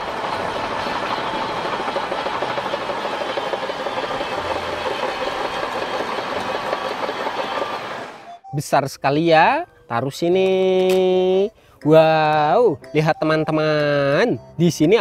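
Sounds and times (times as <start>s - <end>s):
bulldozer diesel engine running: 0.0s - 8.3s
steel tracks clattering: 0.0s - 8.3s.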